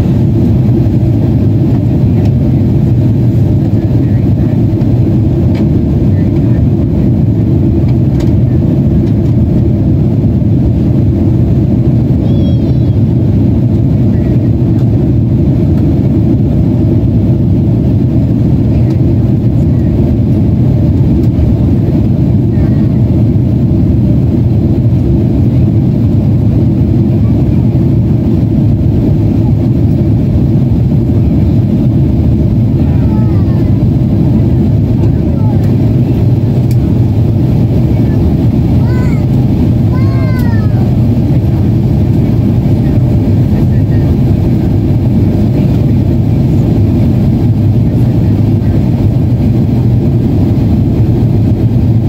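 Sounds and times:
airliner cabin roar: 0.0 - 52.0.

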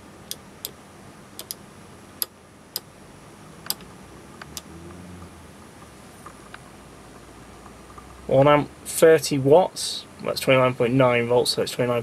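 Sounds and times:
rotary knob clicks: 1.4 - 1.6, 3.6 - 4.7.

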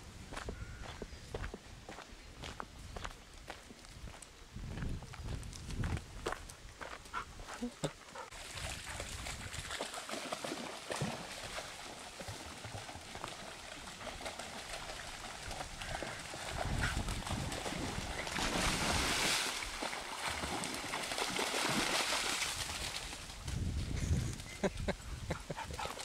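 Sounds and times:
dogs splashing through stream: 8.3 - 23.6.

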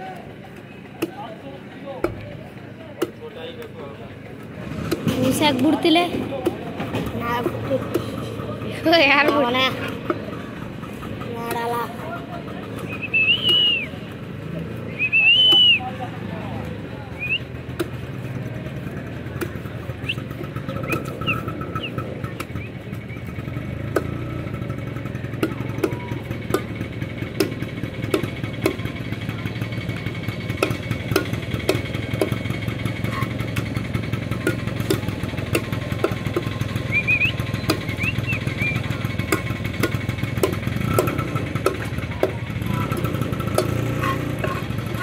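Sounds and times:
cleaver chopping on wooden block: 23.9 - 24.2, 25.3 - 26.8, 27.4 - 28.9, 30.5 - 32.4, 34.3 - 36.6, 39.2 - 44.7.

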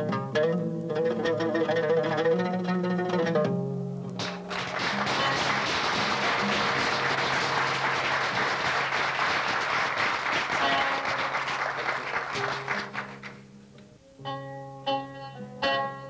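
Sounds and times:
plucked oud notes: 0.0 - 7.8, 12.6 - 16.0
audience applauding: 4.2 - 13.4.

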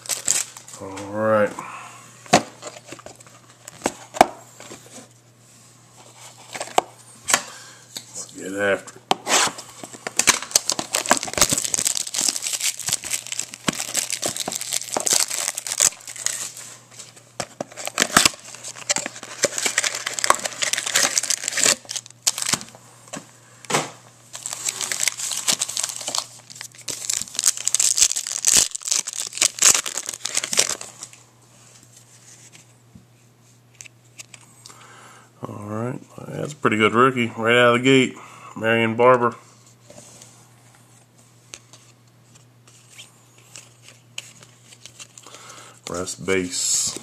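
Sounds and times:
plastic packaging tearing and crinkling: 0.0 - 0.8, 10.2 - 16.7, 17.5 - 22.7, 24.3 - 31.2.

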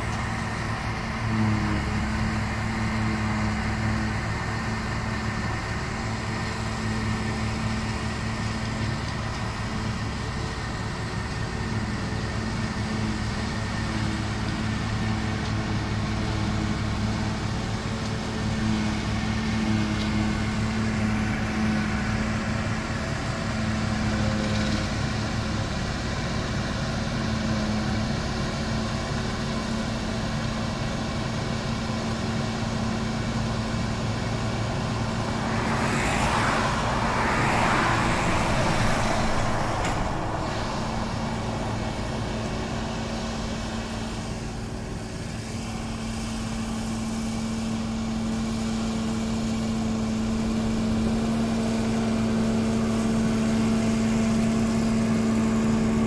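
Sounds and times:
forage harvester engine and chopper: 0.0 - 56.0.

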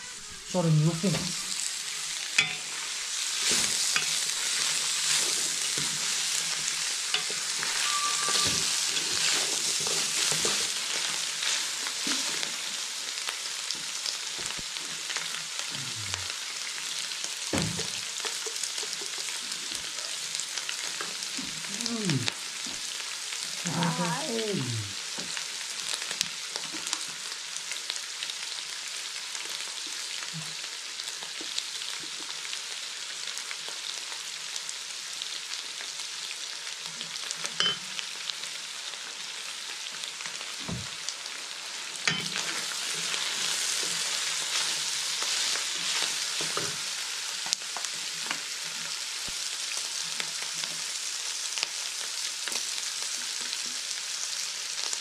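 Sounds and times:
food sizzling in a wok: 0.0 - 55.0
wooden spatula scraping a pan: 3.3 - 12.5.

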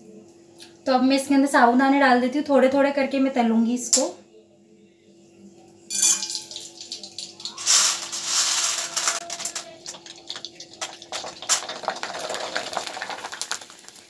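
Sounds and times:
pearls sizzling in hot oil: 5.9 - 14.0.

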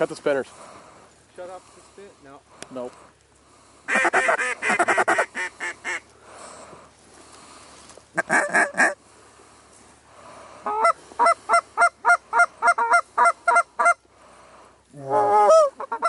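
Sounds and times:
goose honking: 3.9 - 6.0, 8.2 - 9.0, 10.6 - 14.0, 15.1 - 16.0.

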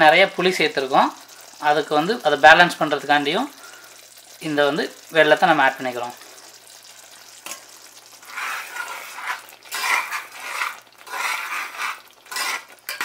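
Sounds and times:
quiet simmering hiss: 0.0 - 13.0
spoon scraping thick gravy in pot: 7.2 - 13.0.

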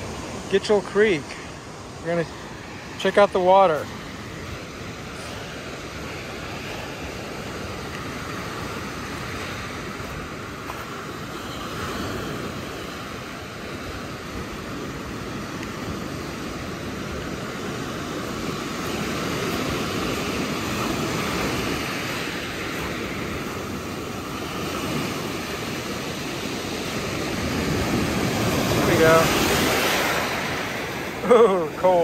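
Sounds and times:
surf breaking on beach: 0.0 - 32.0.

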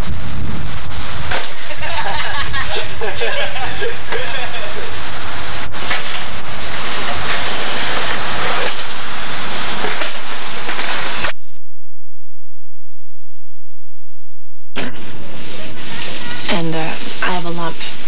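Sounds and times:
loud rushing microphone noise: 0.0 - 11.4
faint tape hum: 0.0 - 18.0.

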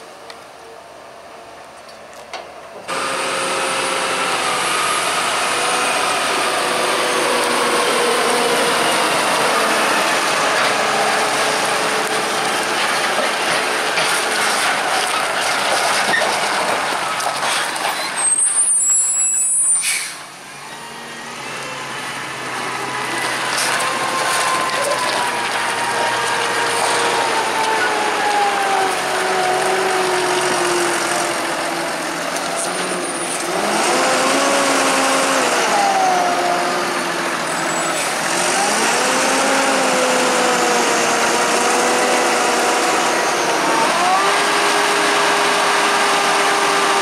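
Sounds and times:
tractor engine under load: 1.3 - 47.0
high squeal: 17.8 - 29.9, 37.5 - 38.7.

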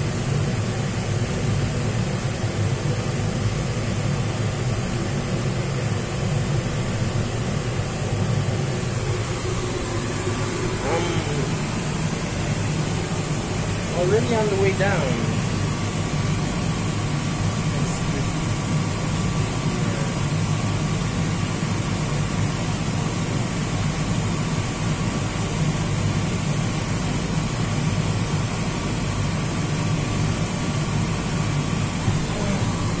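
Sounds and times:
low hum and air rush: 0.0 - 33.0.

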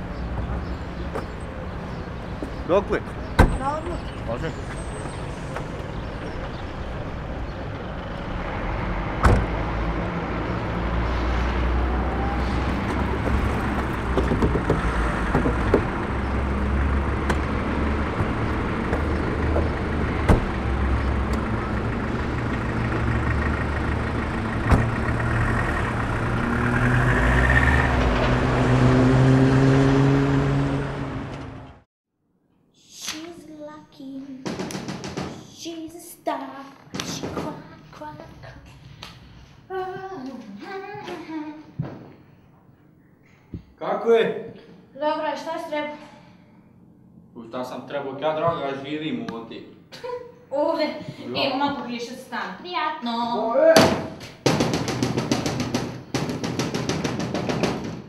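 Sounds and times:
car door shutting: 9.2 - 9.6
car engine running: 13.0 - 26.6.

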